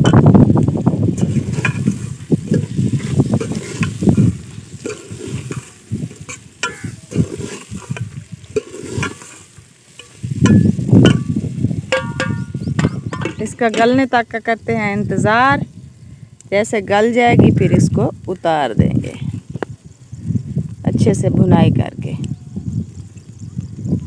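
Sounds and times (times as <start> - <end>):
light sizzle: 0.0 - 24.0
spoon scraping a metal pot: 1.2 - 14.1
spoon clinking against pot: 6.6 - 7.2, 10.0 - 11.3, 11.9 - 14.0.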